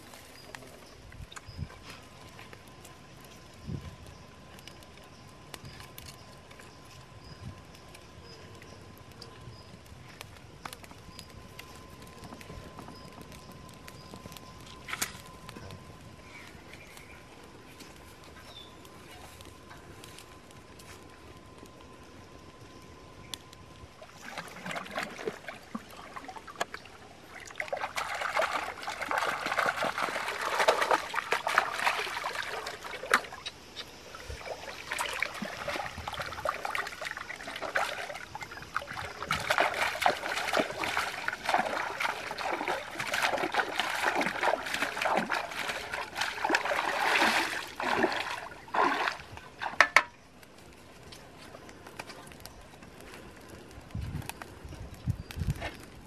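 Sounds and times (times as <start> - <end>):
water splashing and trickling: 24.0 - 54.3.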